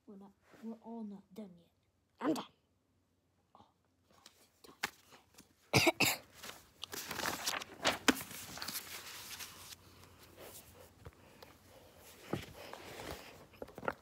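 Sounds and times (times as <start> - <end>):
rustling of toys and paper: 4.1 - 14.0.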